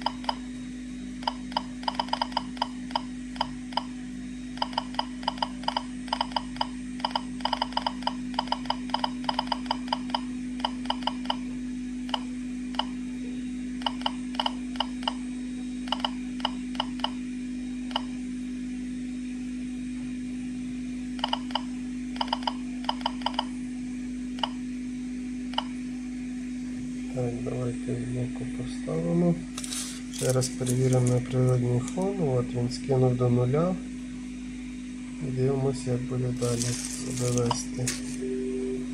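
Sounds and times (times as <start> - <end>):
geiger counter beeps: 1.2 - 3.9, 4.6 - 11.4, 15.9 - 17.2, 21.2 - 23.5.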